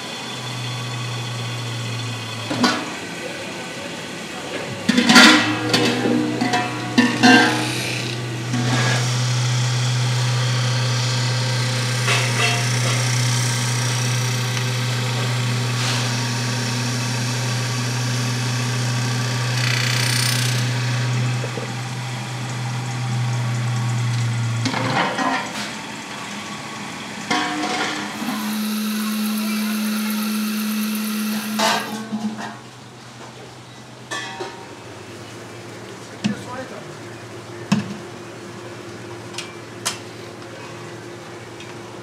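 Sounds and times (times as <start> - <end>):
lathe motor humming: 7.4 - 23.6, 28.1 - 32.0
steady machine tone: 28.1 - 32.2.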